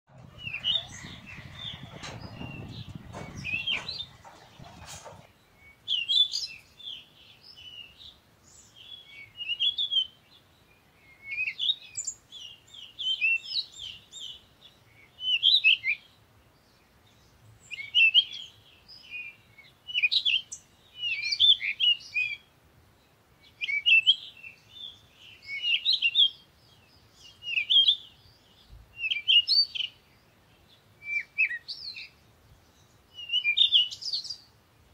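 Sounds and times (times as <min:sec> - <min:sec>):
low noisy rumble with clicks: 0:00.1 - 0:05.4
small birds chirping: 0:00.1 - 0:34.9.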